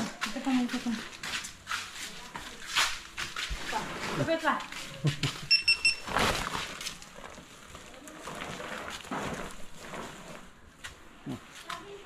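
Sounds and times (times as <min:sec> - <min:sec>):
sacks rustling: 0:02.9 - 0:12.0
high electronic beeps: 0:05.5 - 0:06.1.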